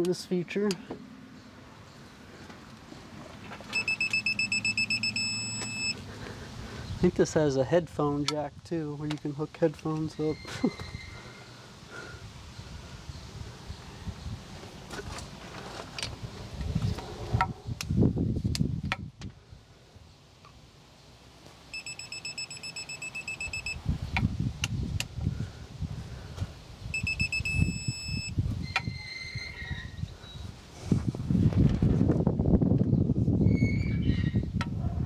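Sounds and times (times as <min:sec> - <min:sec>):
torque wrench beeping: 0:03.7 - 0:06.0, 0:21.7 - 0:23.8, 0:26.9 - 0:29.3.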